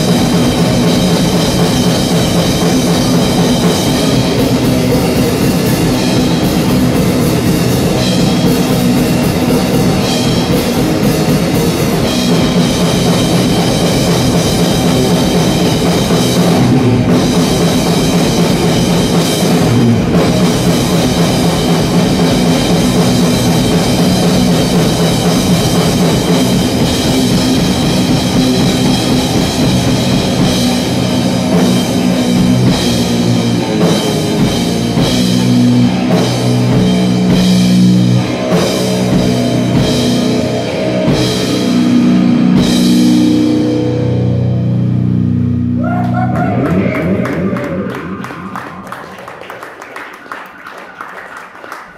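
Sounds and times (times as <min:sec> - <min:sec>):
drums and cymbals: 0:00.0 - 0:45.4
electric guitar riff: 0:00.0 - 0:49.4.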